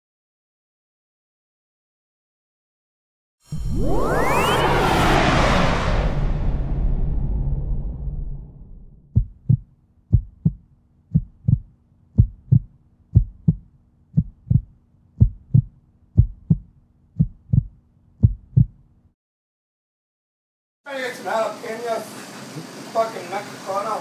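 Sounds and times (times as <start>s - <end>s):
whoosh: 3.5s - 9.3s
heartbeat thumps: 9.1s - 18.8s.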